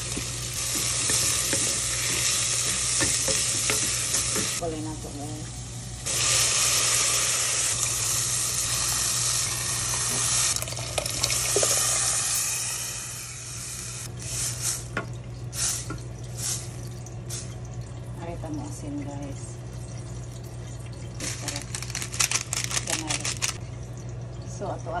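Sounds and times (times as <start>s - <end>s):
soup sizzling and splashing in pan: 0.0s - 4.6s, 5.5s - 17.7s.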